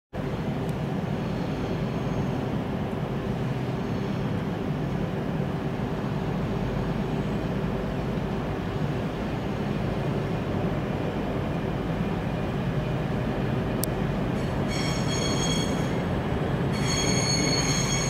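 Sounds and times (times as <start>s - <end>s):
train engine rumble: 0.1s - 18.0s.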